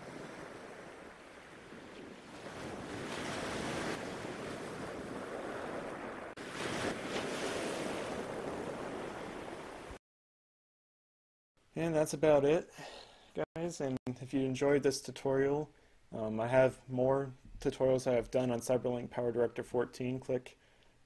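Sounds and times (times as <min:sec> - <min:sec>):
wind buffeting the microphone: 0:00.0 - 0:09.9
rushing surf and water spray: 0:00.0 - 0:10.0.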